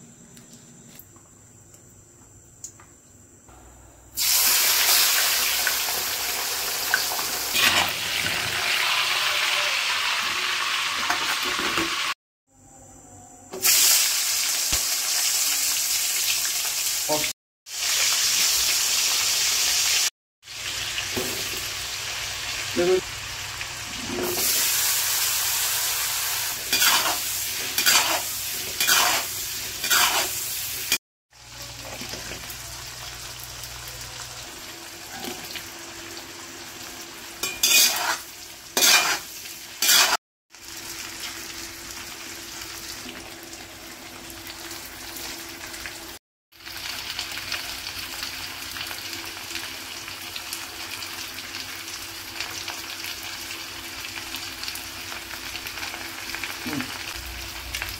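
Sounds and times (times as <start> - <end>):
vegetables sizzling in hot oil: 4.2 - 12.2, 13.6 - 57.9
spatula scraping a wok: 26.5 - 31.0, 37.4 - 40.2.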